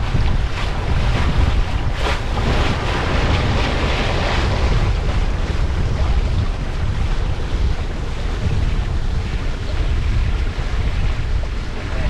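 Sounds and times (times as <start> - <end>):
water splashing along hull: 0.0 - 12.0
wind buffeting microphone: 0.0 - 12.0.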